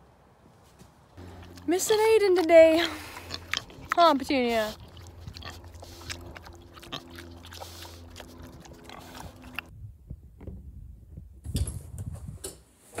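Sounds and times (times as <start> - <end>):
pig chewing wire fence: 1.2 - 9.7
steady low hum: 1.2 - 10.1.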